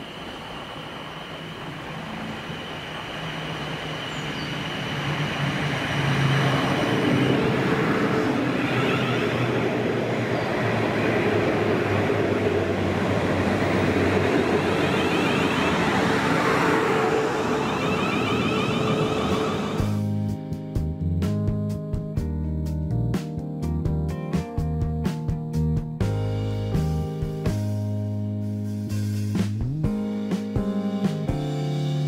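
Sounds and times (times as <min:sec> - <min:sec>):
electric train humming: 0:00.0 - 0:20.0
wheels rumbling on rails: 0:00.0 - 0:20.0.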